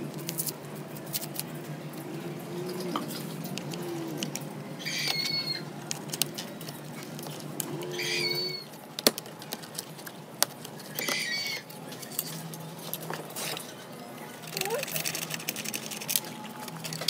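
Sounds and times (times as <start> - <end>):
bird calling: 2.5 - 5.7, 7.6 - 8.7, 10.9 - 12.4.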